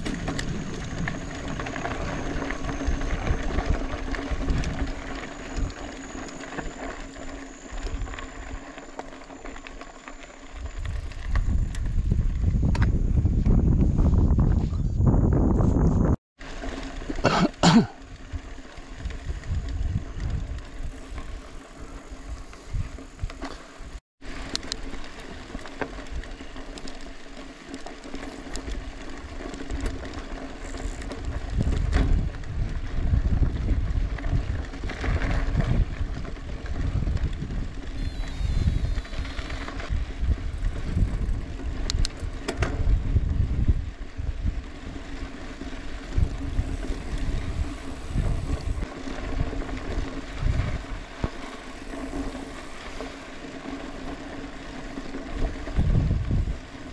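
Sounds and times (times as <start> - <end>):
wind buffeting microphone: 0.0 - 5.8, 10.6 - 16.2, 18.9 - 24.0, 30.6 - 53.1, 55.3 - 56.9.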